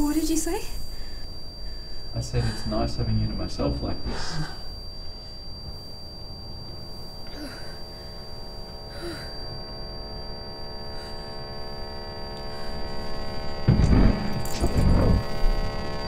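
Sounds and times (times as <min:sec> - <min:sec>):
electric hum drone: 0:00.0 - 0:16.0
thin high whine: 0:00.0 - 0:16.0
low rumble: 0:13.2 - 0:15.8.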